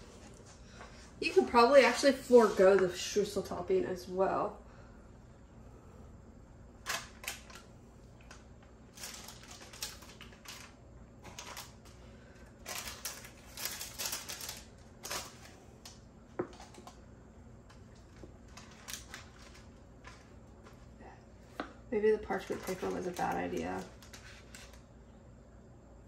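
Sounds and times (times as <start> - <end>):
parchment paper crinkling: 6.8 - 17.0, 17.6 - 21.0, 22.1 - 24.9.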